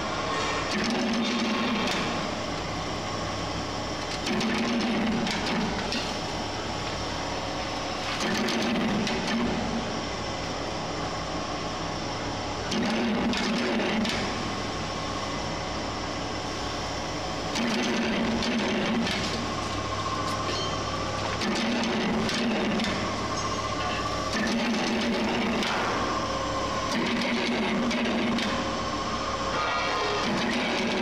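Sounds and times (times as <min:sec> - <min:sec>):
machine motor humming: 0:11.9 - 0:31.0.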